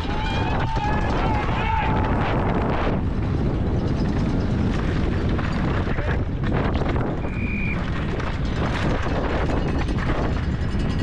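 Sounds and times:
bike rattling and knocking: 0.0s - 11.0s
wind rushing over microphone: 0.0s - 11.0s.

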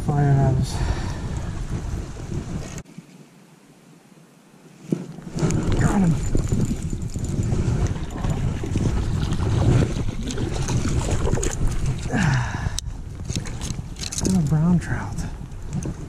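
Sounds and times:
wind rumble on microphone: 0.0s - 2.8s, 4.8s - 16.0s
microphone handling noise: 4.8s - 14.6s.

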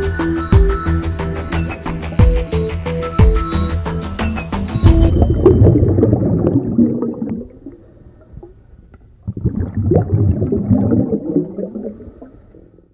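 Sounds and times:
underwater bubbling and gurgling: 4.7s - 12.9s.

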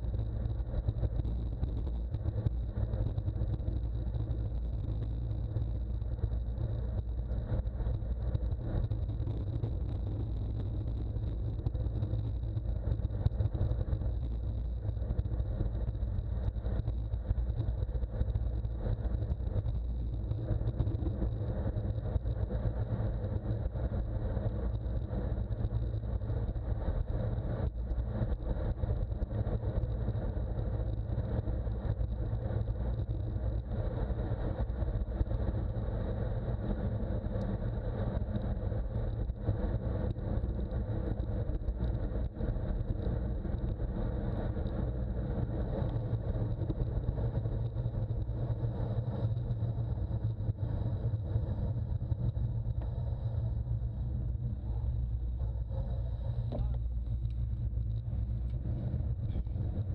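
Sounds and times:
wind rumble on microphone: 0.0s - 59.9s
thin high whine: 54.2s - 59.9s.

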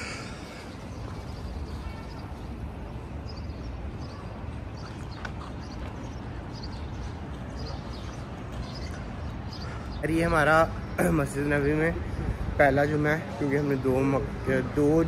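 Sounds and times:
low rumble of street noise: 0.0s - 15.0s
footsteps on pavement: 3.6s - 9.8s.

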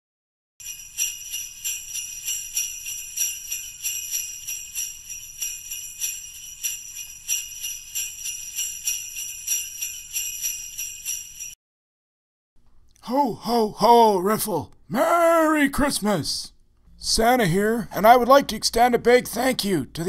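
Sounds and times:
sleigh bells jingling: 0.6s - 11.6s.

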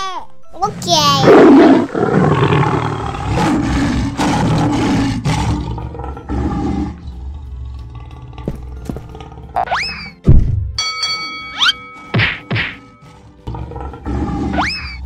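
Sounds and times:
cartoon lion roaring and growling: 0.7s - 10.1s, 13.4s - 15.0s.

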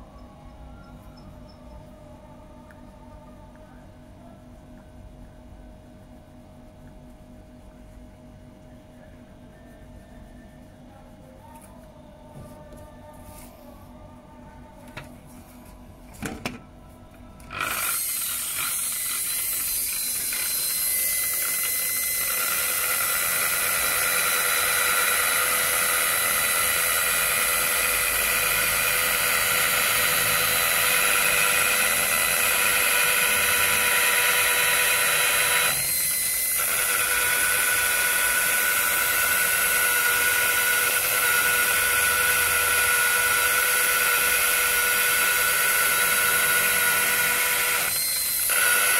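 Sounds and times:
rotary polisher motor whine: 17.5s - 48.9s.

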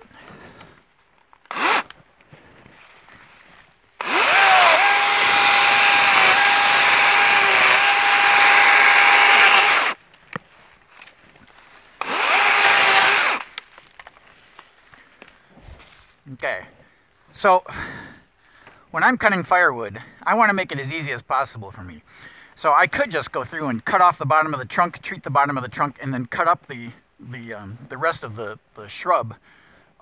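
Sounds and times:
electric chainsaw cutting stems: 1.5s - 2.0s, 4.0s - 10.0s, 12.0s - 13.7s.

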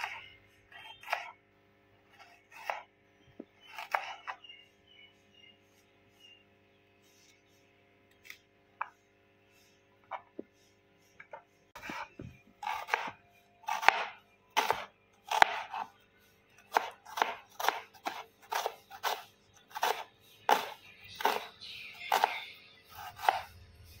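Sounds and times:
knife slicing onion on board: 0.0s - 1.4s, 2.1s - 4.4s, 11.2s - 16.0s, 16.6s - 24.0s.

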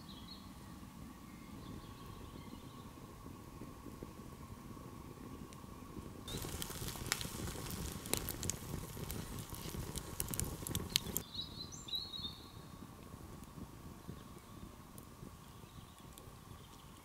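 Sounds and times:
campfire crackling and popping: 3.2s - 11.3s, 12.8s - 17.0s.

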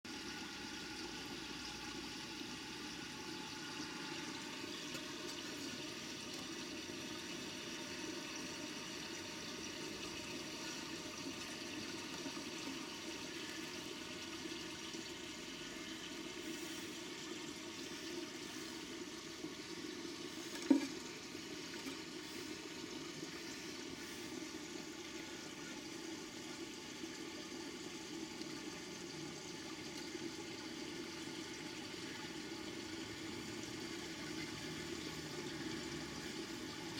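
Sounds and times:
rushing water in a pond: 0.0s - 36.9s
faint multi-tone hum: 0.1s - 36.9s.

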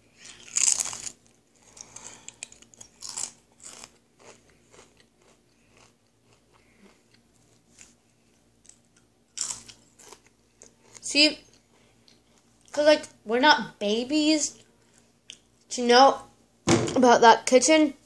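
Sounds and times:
potato crisp crunching: 0.2s - 8.0s, 8.6s - 12.8s.

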